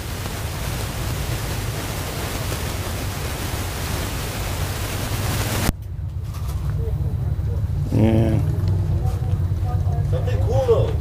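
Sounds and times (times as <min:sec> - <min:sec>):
wind rushing over microphone: 0:00.0 - 0:05.7.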